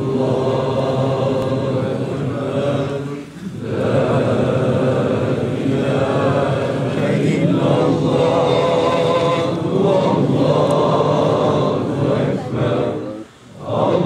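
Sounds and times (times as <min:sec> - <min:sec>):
men chanting in unison: 0:00.0 - 0:14.0.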